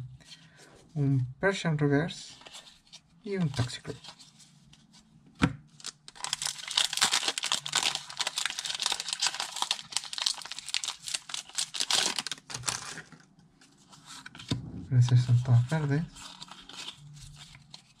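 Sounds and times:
foil wrapper crinkling and tearing: 0:05.8 - 0:13.2.

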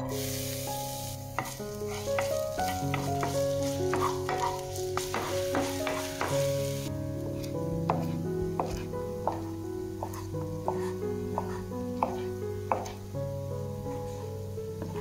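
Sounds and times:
pepper sizzling in frying pan: 0:00.0 - 0:13.3
spatula knocking and scraping pan: 0:01.3 - 0:06.7, 0:07.9 - 0:13.0.

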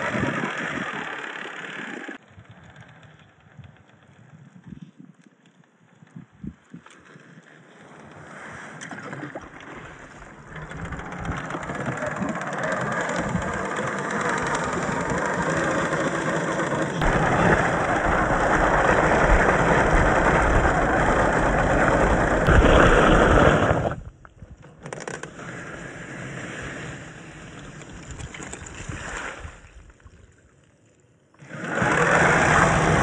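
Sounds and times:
tyres churning through wet sand: 0:00.0 - 0:02.2, 0:07.6 - 0:24.0, 0:31.4 - 0:33.0
rc car motor straining: 0:00.0 - 0:03.1, 0:10.4 - 0:23.9, 0:31.4 - 0:33.0.

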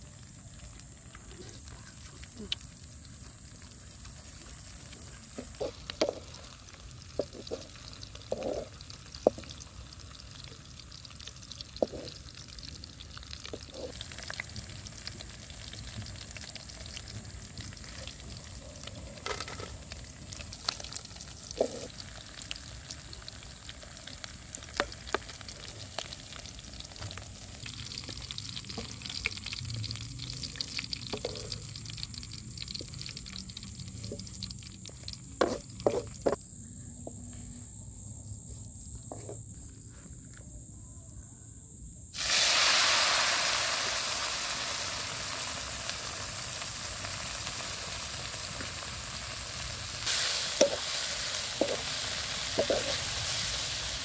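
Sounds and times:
insects sizzling in a wok: 0:00.0 - 0:40.0, 0:41.8 - 0:54.0
wooden spatula scraping wok: 0:05.4 - 0:06.6, 0:35.4 - 0:36.4, 0:50.1 - 0:53.6.

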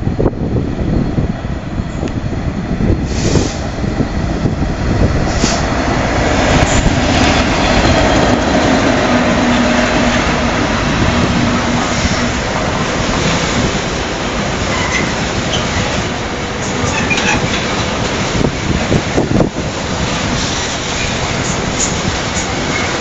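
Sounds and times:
diesel locomotive engine drone: 0:00.0 - 0:23.0
wagons rolling on rails: 0:06.5 - 0:23.0.

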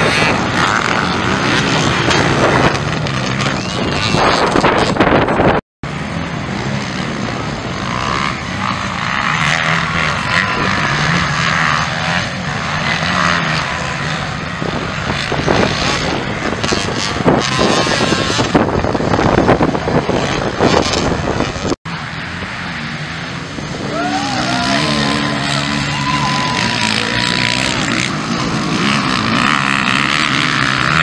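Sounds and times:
motocross bike engines revving: 0:00.0 - 0:31.0.

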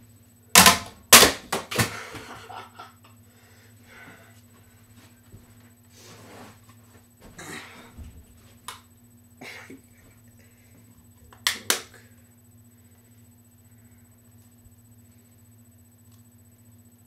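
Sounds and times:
steady low hum: 0:00.0 - 0:17.0
short scraping noises: 0:06.0 - 0:06.6.

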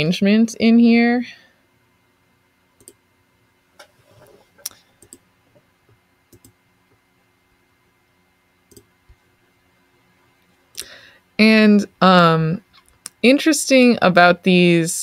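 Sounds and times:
faint computer mouse clicks: 0:02.8 - 0:03.0, 0:06.3 - 0:06.6, 0:08.7 - 0:08.9.

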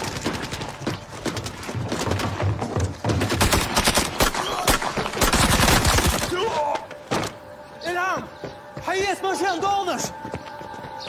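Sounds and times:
automatic gunfire: 0:03.3 - 0:06.3.

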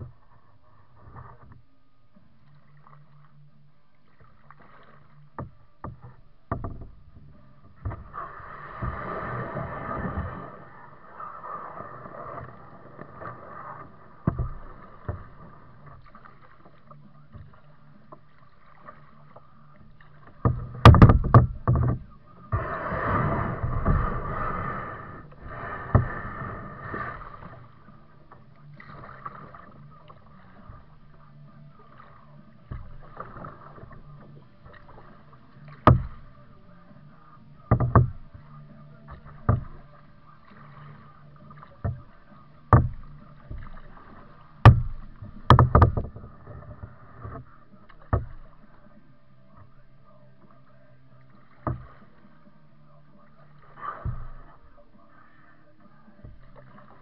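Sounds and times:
paddle strokes splashing in water: 0:00.0 - 0:57.0
sharp knocks: 0:20.4 - 0:22.0, 0:35.8 - 0:36.2, 0:44.6 - 0:46.1.

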